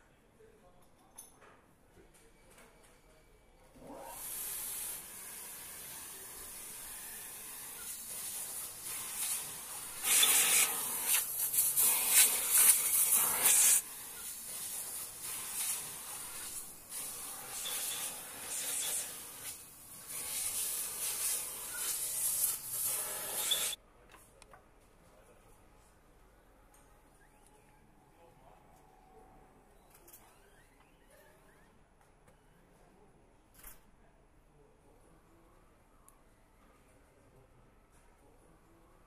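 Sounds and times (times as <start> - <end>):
compressed air hissing: 4.3 - 23.8.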